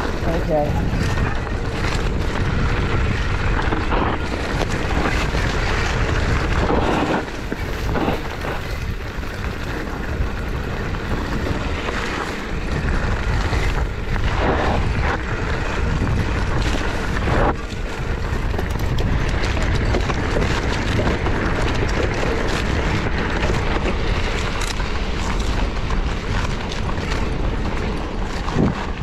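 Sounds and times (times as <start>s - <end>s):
tyres rolling on dirt: 0.0s - 29.0s
wind rushing over microphone: 0.0s - 29.0s.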